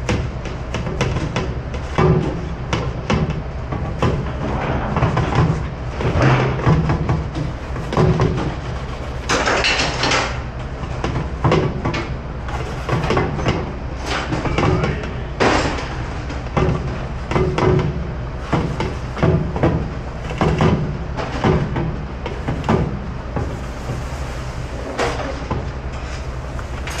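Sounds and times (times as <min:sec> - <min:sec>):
low machinery hum: 0:00.0 - 0:27.0.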